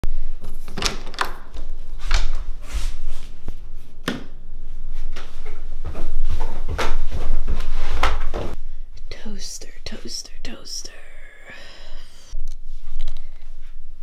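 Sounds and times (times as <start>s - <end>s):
cabinet door opening: 0.7s - 2.5s.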